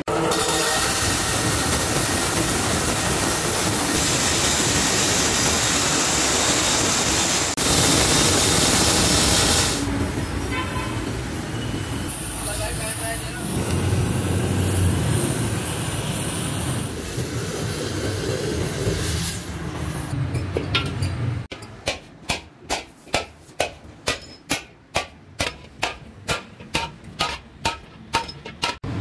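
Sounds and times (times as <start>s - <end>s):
cutting torch hissing: 0.1s - 10.4s, 11.0s - 20.2s
hammer striking steel: 20.2s - 29.0s.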